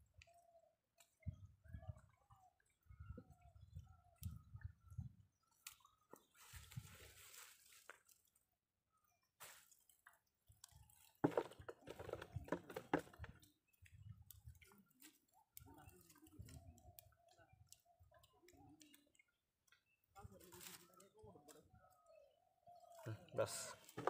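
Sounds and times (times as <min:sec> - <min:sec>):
hand rustling through wet net: 0:06.2 - 0:08.3
small squishes: 0:09.4 - 0:22.1.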